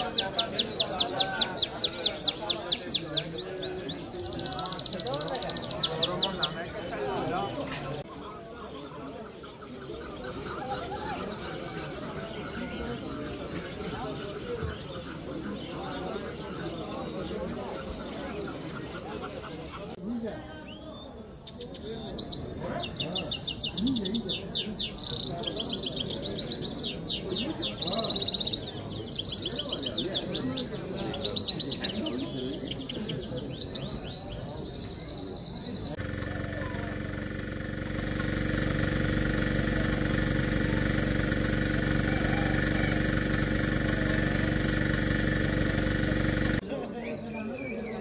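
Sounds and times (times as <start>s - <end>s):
finches twittering song: 0.0s - 19.0s, 20.6s - 48.0s
engine idling: 35.9s - 46.6s.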